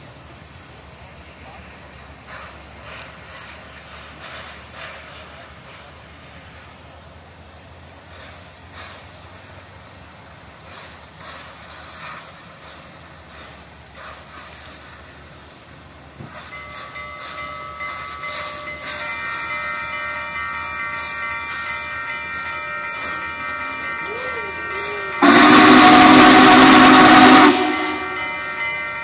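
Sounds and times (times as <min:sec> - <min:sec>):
steam locomotive rumble and hiss: 0:00.0 - 0:29.0
steam whistle: 0:22.4 - 0:29.0.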